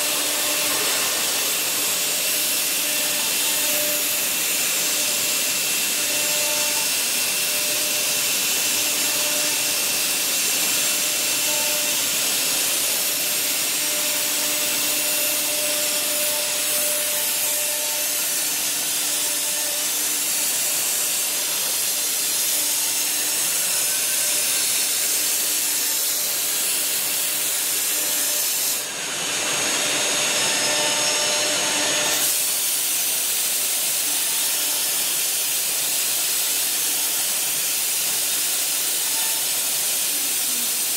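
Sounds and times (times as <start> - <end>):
router spindle hissing: 0.0 - 40.9.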